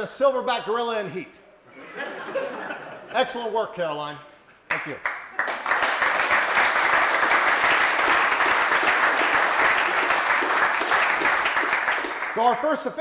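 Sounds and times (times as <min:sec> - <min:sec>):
crowd applauding: 0:04.7 - 0:12.7.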